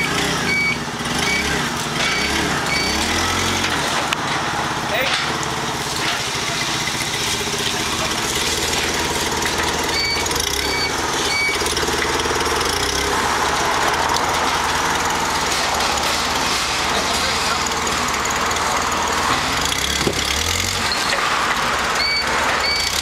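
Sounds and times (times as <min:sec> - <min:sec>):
short high beeps: 0:00.0 - 0:01.5, 0:02.1 - 0:03.0, 0:09.9 - 0:11.6, 0:22.0 - 0:22.9
forklift engine running: 0:00.0 - 0:23.0.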